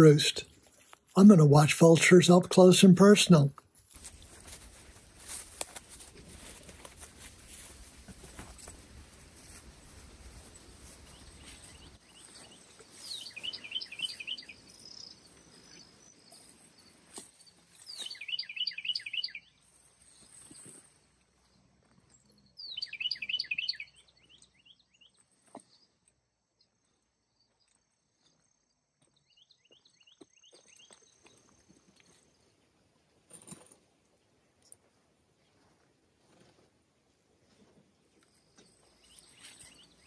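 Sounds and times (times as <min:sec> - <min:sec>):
songbird whistling: 0:13.1 - 0:14.6, 0:17.9 - 0:19.6, 0:22.6 - 0:24.0.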